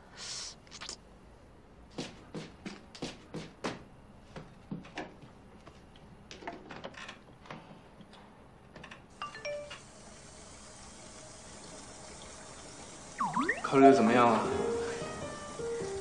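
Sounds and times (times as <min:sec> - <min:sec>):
faint steady hiss: 0:09.1 - 0:16.0.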